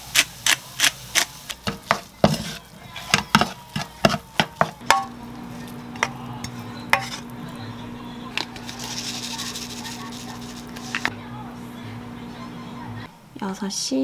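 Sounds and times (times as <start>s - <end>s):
wooden spatula tapping a wok: 3.1s - 5.2s
steady low hum: 4.8s - 13.4s
seeds being ground: 8.2s - 11.2s.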